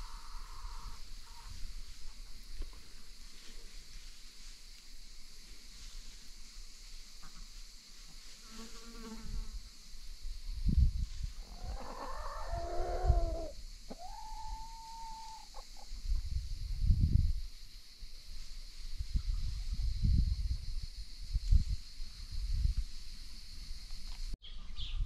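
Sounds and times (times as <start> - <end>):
hens calling: 11.4 - 15.9.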